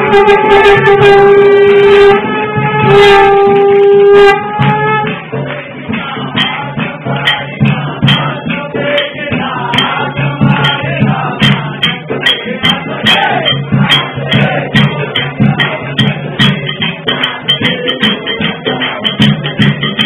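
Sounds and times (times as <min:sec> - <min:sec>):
conch shell blown: 0:00.0 - 0:05.2
group singing or chanting: 0:00.0 - 0:20.0.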